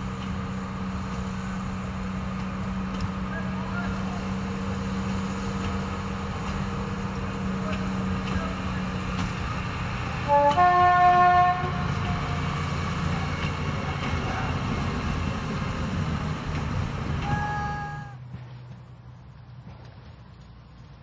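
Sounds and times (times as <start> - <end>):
railcar diesel engine and wheels: 0.0 - 21.0
train horn blasts: 10.2 - 12.6.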